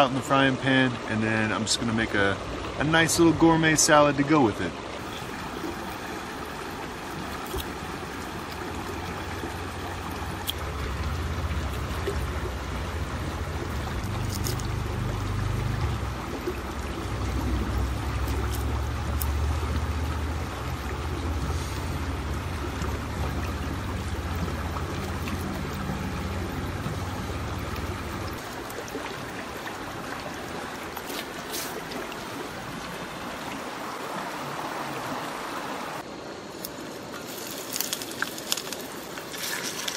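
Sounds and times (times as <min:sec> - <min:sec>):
river water flowing: 0:00.0 - 0:39.9
low rumble: 0:10.1 - 0:28.4.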